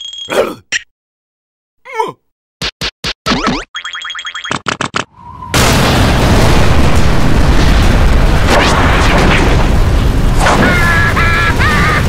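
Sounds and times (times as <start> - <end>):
cartoon storm wind rumble: 5.1 - 12.0.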